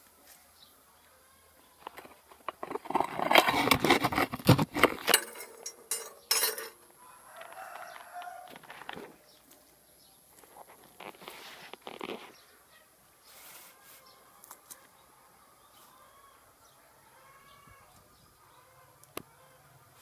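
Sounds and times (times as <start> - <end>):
loud rustling: 1.8 - 6.8
rooster crowing: 6.9 - 9.0, 15.2 - 20.0.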